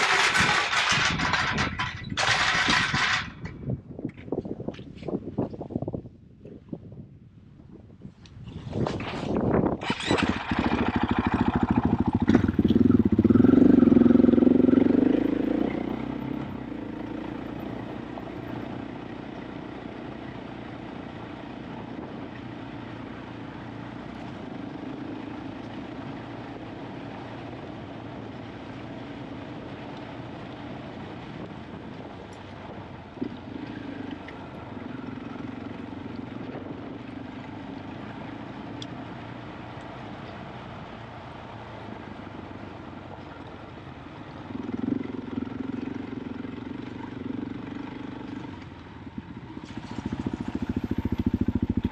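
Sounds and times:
motorcycle engine revving: 0:00.0 - 0:03.4, 0:08.9 - 0:39.6, 0:44.3 - 0:51.9.

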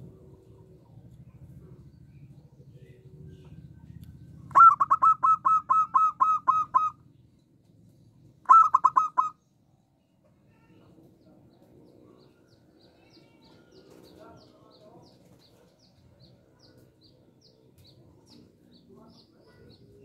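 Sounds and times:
dove calling in short clipped notes: 0:04.5 - 0:07.0, 0:08.4 - 0:09.4.

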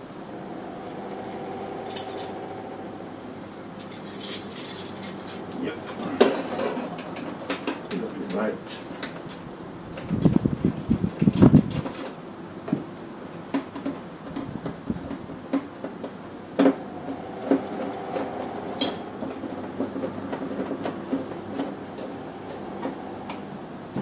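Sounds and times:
metal bolts and washers clinking: 0:03.6 - 0:05.5.

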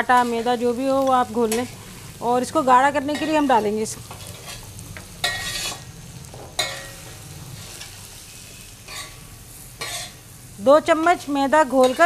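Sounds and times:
curry sizzling in a pan: 0:00.0 - 0:12.0
spoon stirring a pan: 0:03.1 - 0:05.8, 0:06.5 - 0:08.0, 0:08.9 - 0:09.2, 0:09.8 - 0:10.2, 0:11.0 - 0:12.0.

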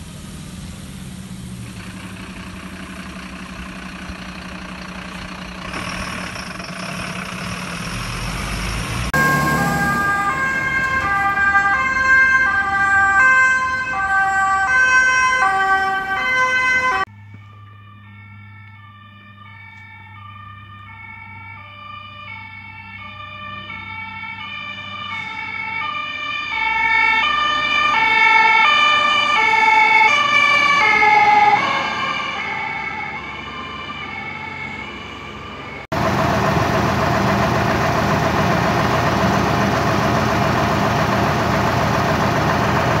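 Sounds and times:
two-tone siren: 0:07.6 - 0:36.7.

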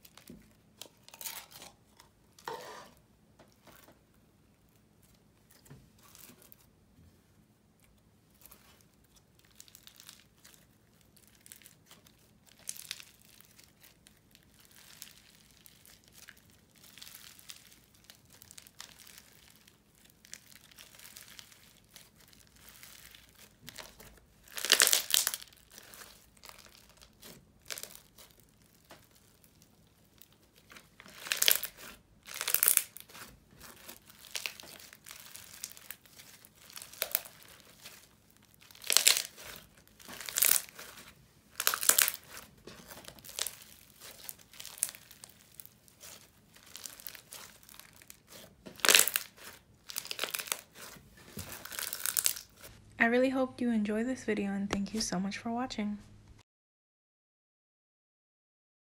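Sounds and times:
slime squished by hand: 0:07.8 - 0:52.8.

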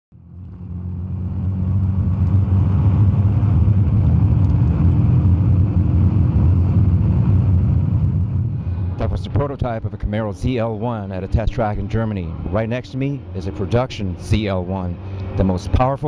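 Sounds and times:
car engine rumbling from inside cabin: 0:00.2 - 0:16.0.

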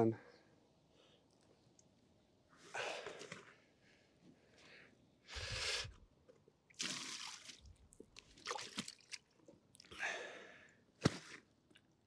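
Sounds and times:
wet squelching and rustling of fish: 0:06.8 - 0:09.9.

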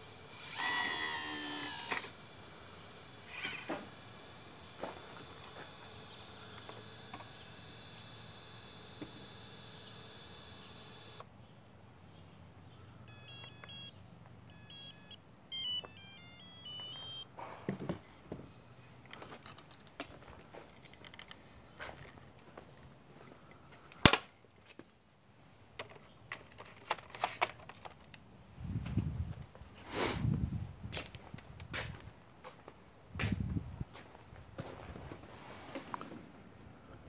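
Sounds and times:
hydraulic pump whining: 0:00.0 - 0:11.2, 0:13.1 - 0:13.9
short electronic beeps: 0:00.0 - 0:11.2, 0:13.1 - 0:13.9, 0:14.5 - 0:17.2.

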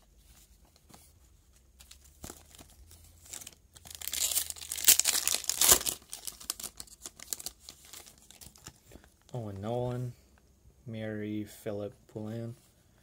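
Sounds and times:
wrapper tearing and crinkling: 0:01.8 - 0:08.8.

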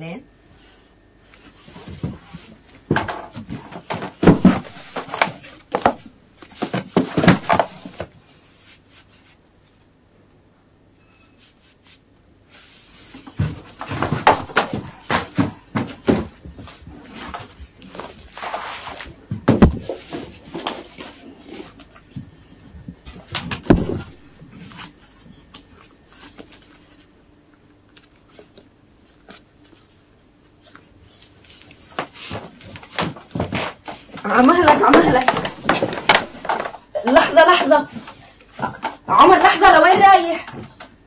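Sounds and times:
child thumping and moving about: 0:01.6 - 0:08.2, 0:13.0 - 0:25.0, 0:31.9 - 0:40.9.

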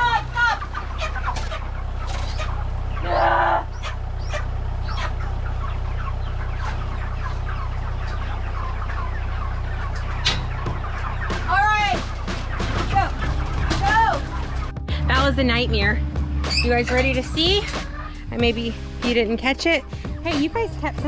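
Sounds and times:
chicken squawk: 0:00.0 - 0:14.7
chickens peeping and clucking: 0:00.0 - 0:21.0
steady low hum: 0:00.0 - 0:21.0.

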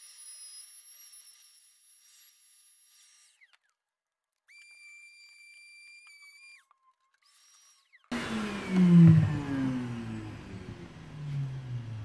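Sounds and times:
power tool motor: 0:00.0 - 0:03.8, 0:04.5 - 0:12.0
faint high whine: 0:08.1 - 0:12.0.

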